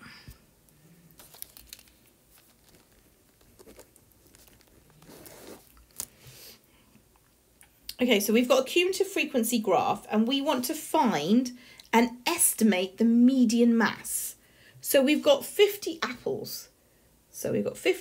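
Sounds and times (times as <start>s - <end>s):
soft rustling: 0.3s - 6.5s.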